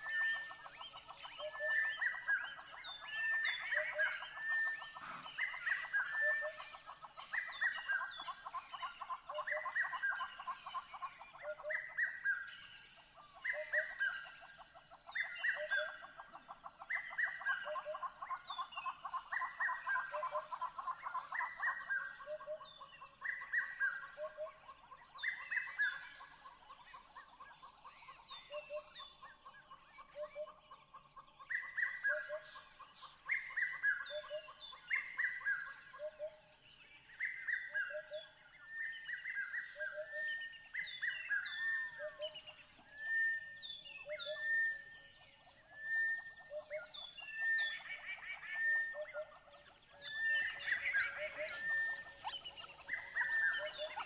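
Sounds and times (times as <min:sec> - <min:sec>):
bird-like chirping calls: 0:41.0 - 0:54.0.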